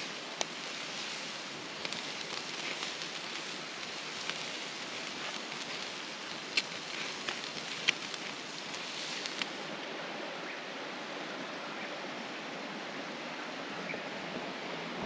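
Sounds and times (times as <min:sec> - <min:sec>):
campfire crackling and popping: 0:00.0 - 0:09.8
creek flowing: 0:00.0 - 0:15.0.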